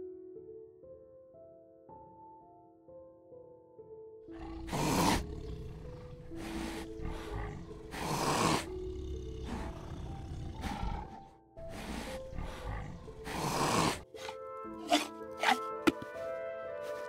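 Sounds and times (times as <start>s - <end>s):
background music: 0.0s - 17.0s
tiger growling: 4.3s - 15.8s.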